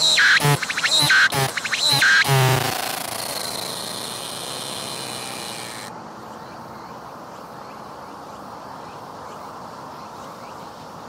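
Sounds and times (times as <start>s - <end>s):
cicada buzzing: 0.0s - 5.9s.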